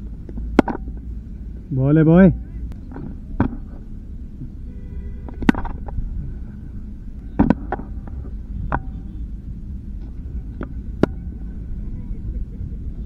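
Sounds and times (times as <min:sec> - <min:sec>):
wind rumbling on microphone: 0:00.0 - 0:13.0
cricket ball impact knock: 0:08.6 - 0:09.1.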